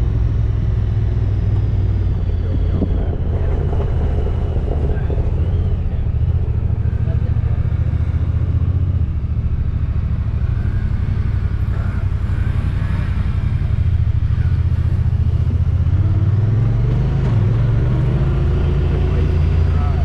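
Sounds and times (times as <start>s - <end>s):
vehicle engine drone: 0.0s - 20.0s.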